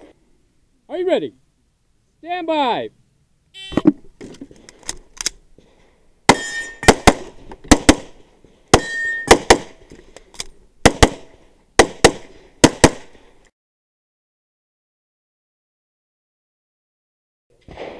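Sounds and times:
pistol firing rapidly: 6.3 - 8.2, 8.8 - 9.8, 10.8 - 13.2.

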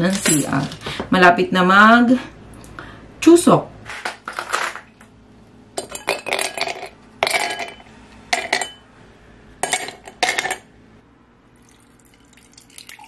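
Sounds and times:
dishes and cutlery clinking: 5.8 - 8.8, 9.6 - 10.7.

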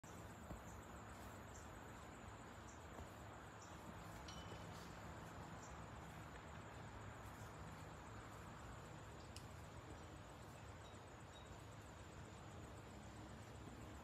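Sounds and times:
soft high ticks: 9.1 - 10.0.

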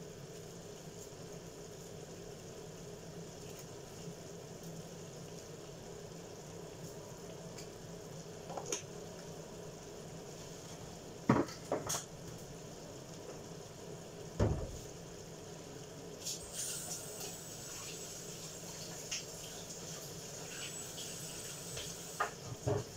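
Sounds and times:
food sizzling in a frying pan: 0.0 - 22.9
kitchen knocks and clatters: 11.2 - 12.1, 14.4 - 14.8, 22.2 - 22.9
dull thump: 14.4 - 14.8.

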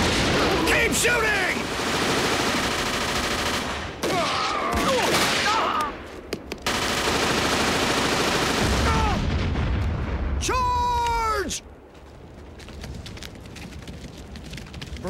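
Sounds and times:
machine-gun fire: 1.4 - 4.2, 6.6 - 9.7
people shouting: 4.0 - 6.0, 8.8 - 9.3.

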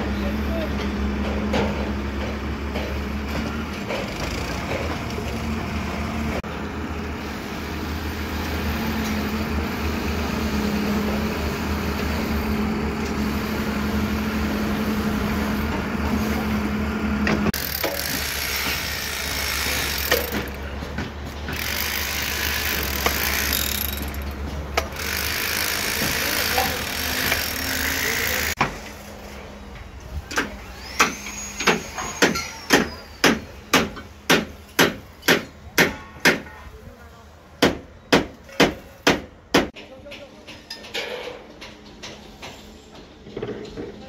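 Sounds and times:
angle grinder cutting steel: 17.6 - 20.4, 21.6 - 24.3, 24.9 - 28.6.

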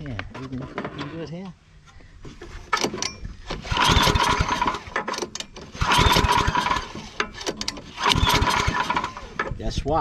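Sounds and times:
engine being pull-started: 2.7 - 9.6.

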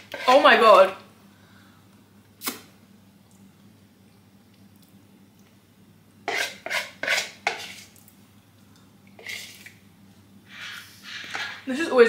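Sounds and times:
metal spoon scraping a bowl: 0.0 - 0.5, 6.3 - 7.9, 9.2 - 9.7, 10.5 - 11.7.

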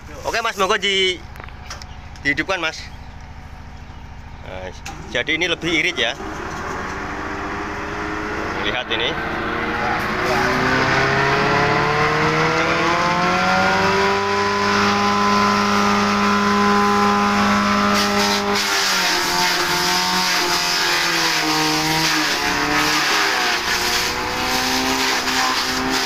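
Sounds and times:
grass chopper motor whining: 0.0 - 26.0
grass crackling in chopper: 14.6 - 26.0.

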